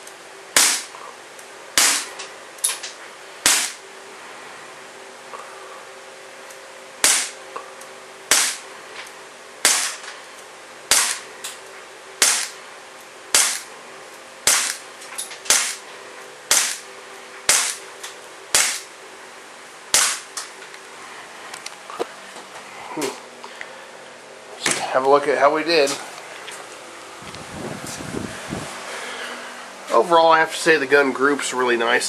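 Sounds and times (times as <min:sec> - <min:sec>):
air pistol shots: 0:00.6 - 0:00.9, 0:01.8 - 0:02.2, 0:03.4 - 0:03.8, 0:07.0 - 0:07.4, 0:08.3 - 0:08.7, 0:09.6 - 0:10.1, 0:10.9 - 0:11.3, 0:12.2 - 0:12.6, 0:13.3 - 0:13.7, 0:14.4 - 0:14.8, 0:15.5 - 0:15.8, 0:16.5 - 0:16.9, 0:17.5 - 0:17.8, 0:18.5 - 0:18.9, 0:19.9 - 0:20.4.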